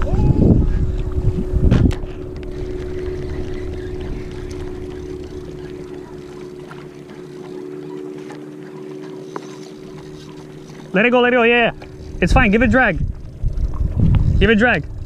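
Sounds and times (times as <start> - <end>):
wind rumble on microphone: 0.0 - 6.6, 11.5 - 15.0
motorboat engine droning: 0.0 - 15.0.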